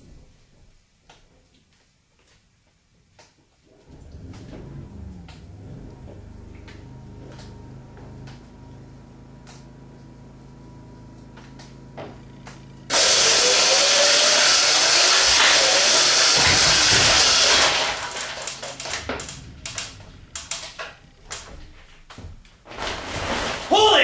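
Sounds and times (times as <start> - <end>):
electric drive motor running loudly: 3.8 - 22.2.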